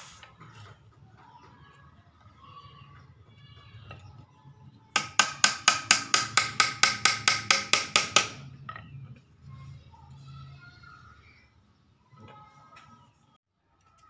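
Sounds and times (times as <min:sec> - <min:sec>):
small hammer tapping on wood: 0:05.0 - 0:08.4.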